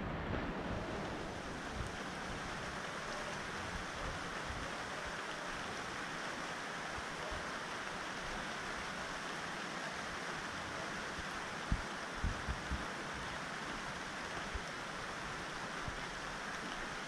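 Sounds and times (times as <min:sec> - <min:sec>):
heavy rain: 0:00.0 - 0:17.0.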